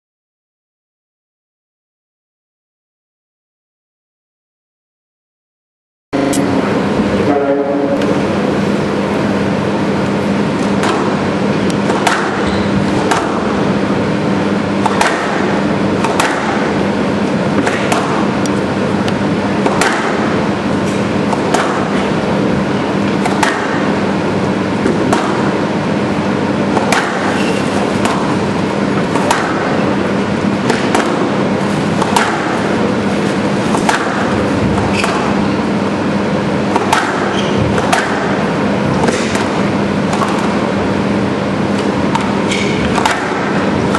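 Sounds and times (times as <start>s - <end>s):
steady background hum: 6.2s - 43.9s
squash ball cracking off rackets: 10.6s - 13.7s, 14.8s - 16.9s, 17.6s - 18.4s, 19.6s - 20.5s, 21.3s - 22.1s, 23.2s - 24.1s, 26.7s - 30.0s, 30.6s - 35.4s, 36.6s - 38.4s, 39.0s - 40.8s, 41.8s - 43.9s.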